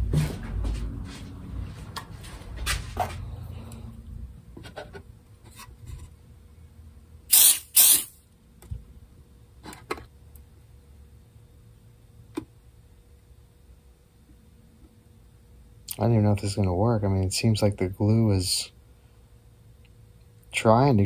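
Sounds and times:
short loud hisses: 7.3s - 8.2s.

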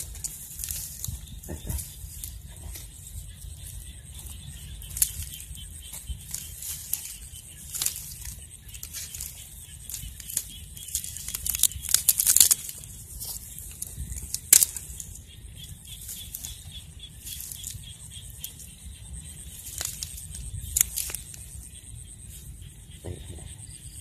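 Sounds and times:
dry weeds rustling and crackling: 0.0s - 24.0s
sharp cracks of stalks: 4.8s - 15.3s, 19.4s - 21.8s.

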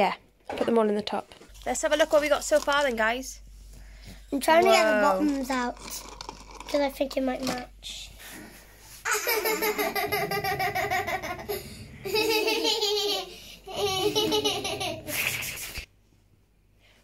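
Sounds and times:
high-pitched laughter: 9.1s - 15.6s.

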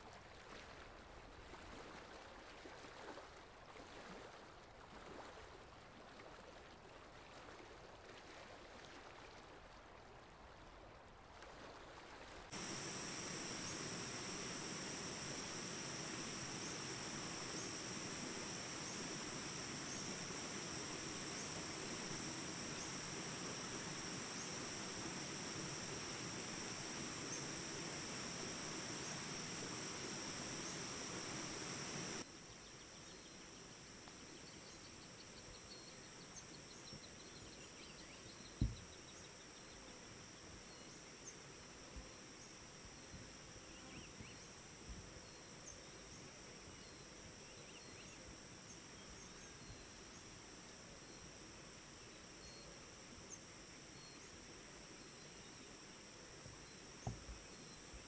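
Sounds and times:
high-pitched insect chorus: 12.5s - 41.4s
faint insect chirps: 12.5s - 58.0s.

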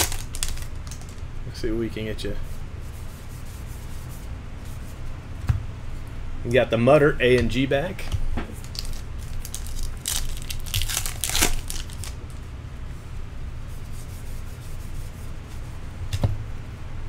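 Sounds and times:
cards rustling: 0.0s - 1.2s, 8.5s - 12.4s
wrapper crinkling and tearing: 0.0s - 1.2s, 8.6s - 12.3s.

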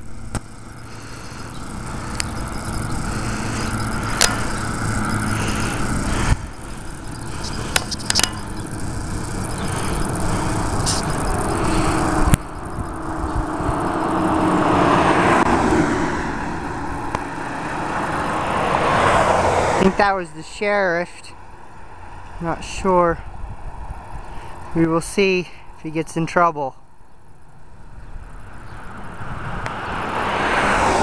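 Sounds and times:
sharp clicks: 0.0s - 14.4s
vehicle engine running: 0.0s - 26.0s
car passing by: 13.6s - 19.9s, 28.8s - 31.0s.

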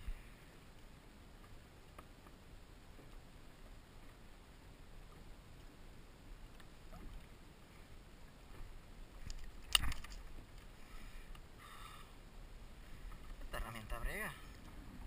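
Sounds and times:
water lapping: 0.0s - 15.0s
wind noise: 9.1s - 10.6s.

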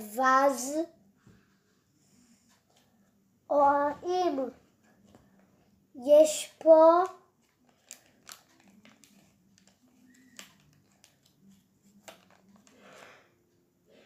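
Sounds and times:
soft breath: 1.2s - 3.1s.

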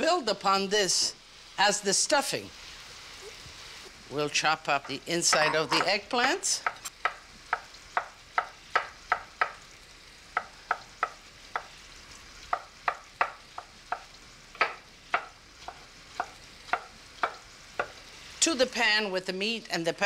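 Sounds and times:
knife chopping on wooden board: 6.6s - 9.6s, 12.5s - 18.0s.

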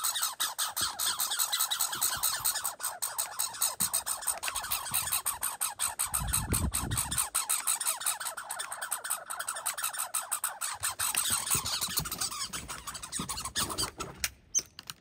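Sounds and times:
squirrel chattering: 0.0s - 13.9s.

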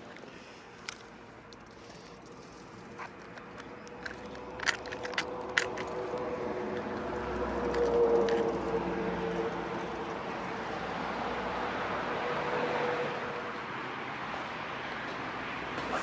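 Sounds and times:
steady engine hum: 0.0s - 16.0s
plastic clicks and rattles: 0.8s - 7.1s.

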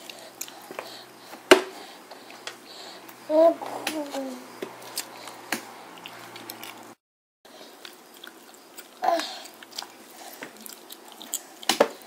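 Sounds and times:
baby chewing: 0.0s - 12.0s
baby vocal sound: 2.7s - 5.3s, 9.0s - 9.6s.

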